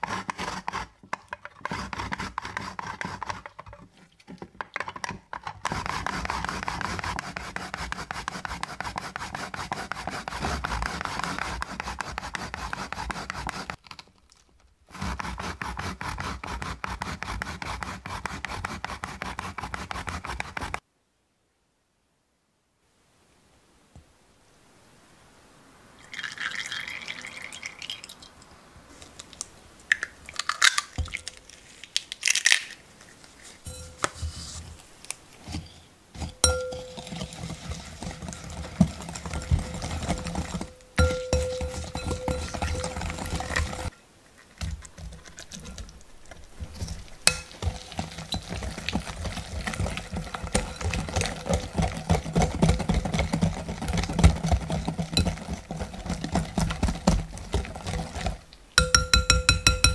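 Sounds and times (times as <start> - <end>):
whisk beating batter in glass bowl: 5.6 - 13.8, 36.2 - 43.9, 47.3 - 59.9
oil pouring into glass bowl: 26.0 - 28.3.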